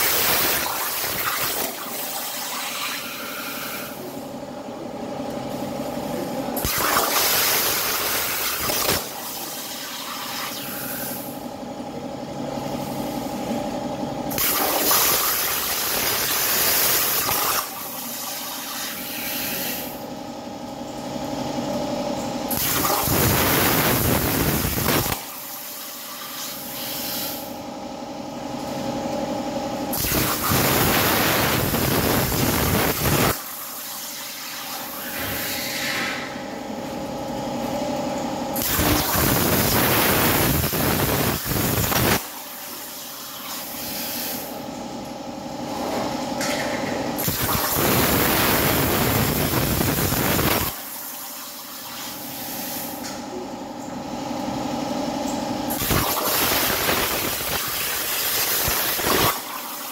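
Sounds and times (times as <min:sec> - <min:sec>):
plasma torch hissing: 0:00.0 - 0:04.1, 0:06.6 - 0:11.4, 0:14.3 - 0:20.0, 0:22.5 - 0:27.6, 0:29.9 - 0:36.3, 0:38.6 - 0:44.5, 0:47.2 - 0:53.0, 0:55.7 - 0:59.9.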